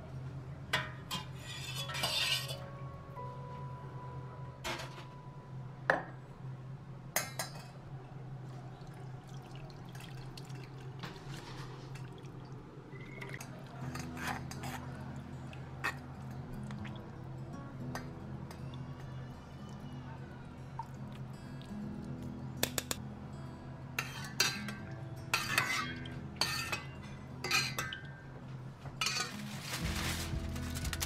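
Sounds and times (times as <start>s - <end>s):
spoon scraping metal mesh: 1.1s - 2.6s
gravy pouring and dripping: 8.7s - 17.1s.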